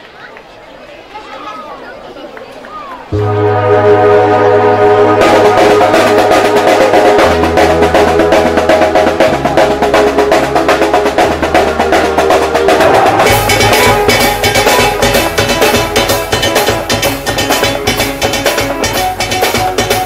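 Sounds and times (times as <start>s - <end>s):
low held bass note: 3.1s - 8.5s
drum troupe playing fast beat: 5.0s - 20.0s.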